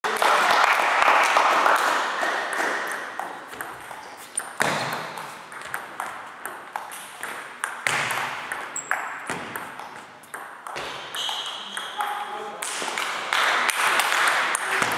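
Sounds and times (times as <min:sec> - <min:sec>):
table tennis ball pinging: 0:02.5 - 0:12.8.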